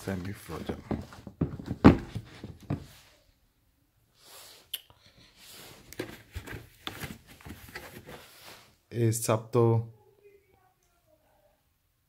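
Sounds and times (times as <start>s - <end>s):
soft rustles and light taps: 5.8s - 8.7s.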